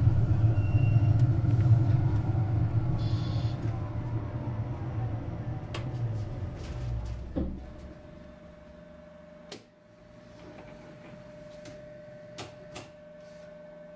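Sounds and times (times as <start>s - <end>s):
tram rumble: 0.0s - 8.9s
electrical hum: 0.0s - 13.9s.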